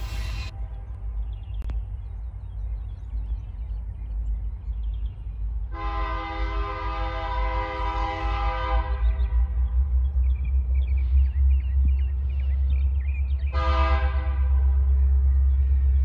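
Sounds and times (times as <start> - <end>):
low rumble: 0.0 - 16.0
locomotive air horn blast: 5.7 - 9.4, 13.5 - 14.9.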